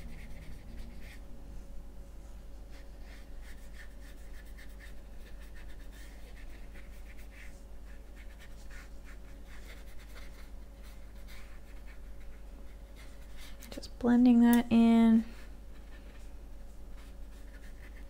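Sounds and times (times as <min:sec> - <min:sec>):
steady low hum: 0:00.0 - 0:18.0
paintbrush strokes on paper: 0:02.2 - 0:13.6, 0:15.2 - 0:18.0.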